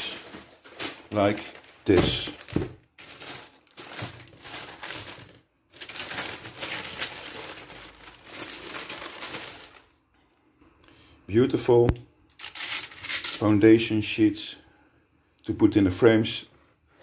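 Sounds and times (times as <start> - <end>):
paper crinkling and rustling: 0.0 - 10.0.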